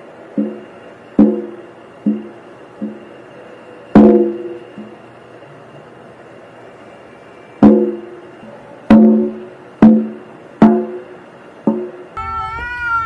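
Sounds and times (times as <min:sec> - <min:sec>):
drum thumps: 0:00.4 - 0:03.1, 0:04.0 - 0:05.0, 0:07.6 - 0:08.1, 0:08.9 - 0:12.1.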